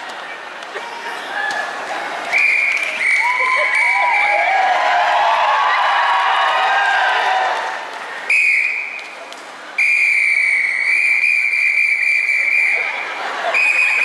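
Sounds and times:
audience applause: 0:00.0 - 0:08.3
whistle blast: 0:02.3 - 0:04.3, 0:08.3 - 0:09.0, 0:09.8 - 0:12.8.

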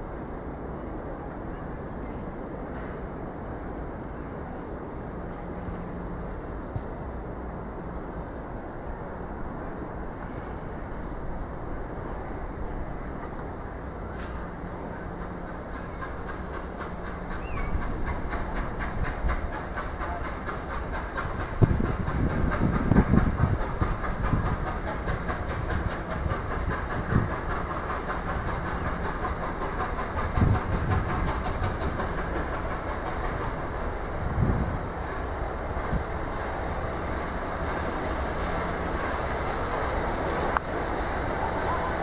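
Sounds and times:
steam locomotive exhaust beats: 0:09.1 - 0:42.0
steam hissing: 0:13.8 - 0:42.0.

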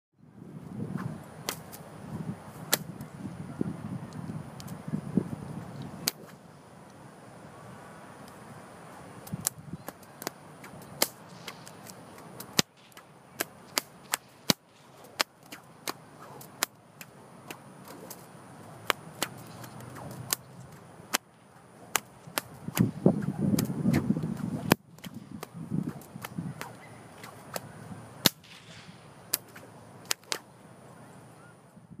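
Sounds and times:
bullwhip cracks: 0:01.0 - 0:01.8, 0:02.7 - 0:02.9, 0:06.0 - 0:06.4, 0:09.2 - 0:30.5.

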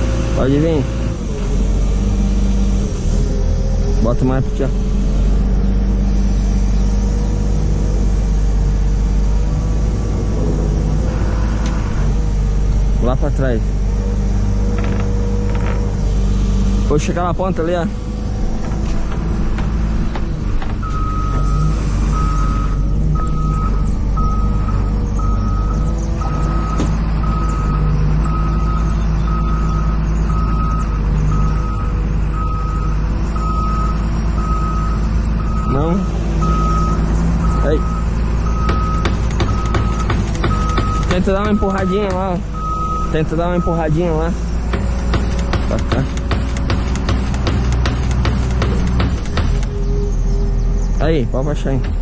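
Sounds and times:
truck reversing alarm beeping: 0:00.0 - 0:51.9
diesel engine droning: 0:00.0 - 0:52.0.

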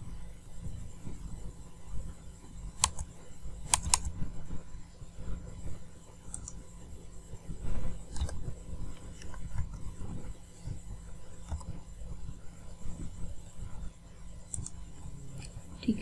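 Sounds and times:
steady low hum: 0:00.0 - 0:16.0
mouse and keyboard clicks: 0:02.8 - 0:03.1, 0:03.7 - 0:04.1, 0:06.3 - 0:06.6, 0:08.1 - 0:08.4, 0:11.4 - 0:11.8, 0:14.5 - 0:14.8.

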